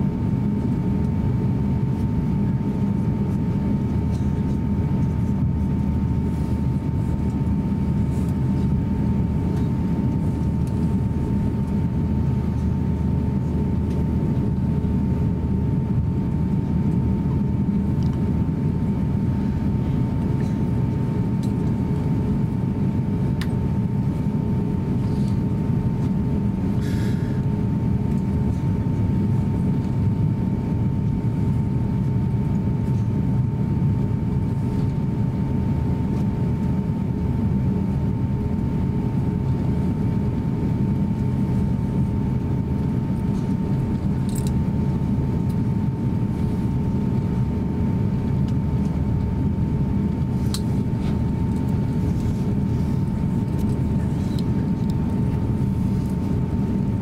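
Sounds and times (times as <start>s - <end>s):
aircraft engines rumbling: 0.0s - 57.0s.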